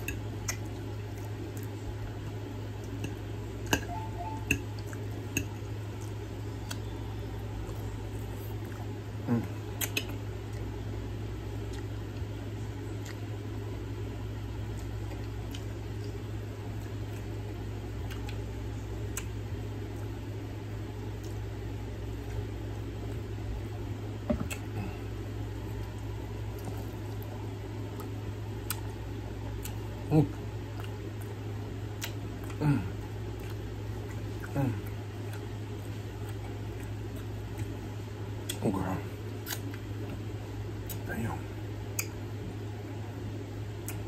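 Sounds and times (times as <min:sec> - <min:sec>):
low hum: 0:00.0 - 0:44.0
wet chewing: 0:07.6 - 0:10.8, 0:18.0 - 0:18.4, 0:25.7 - 0:29.0, 0:29.6 - 0:38.6, 0:39.3 - 0:40.2.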